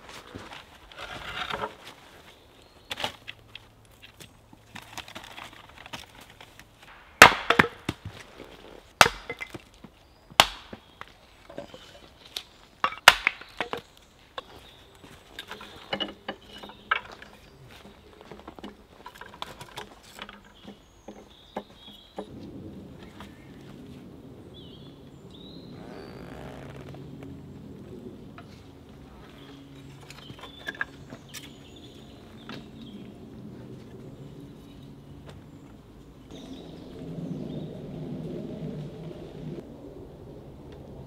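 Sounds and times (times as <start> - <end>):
axe chopping wood: 7.2 - 8.2, 9.0 - 9.7, 10.4 - 10.9, 12.9 - 13.7
wood knocking and clinking: 15.4 - 17.5.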